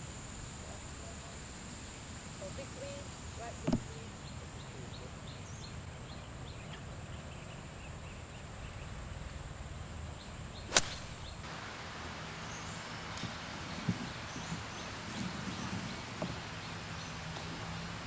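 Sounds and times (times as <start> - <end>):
high insect whine: 0.0 - 18.0
golf club striking ball: 10.7 - 11.3.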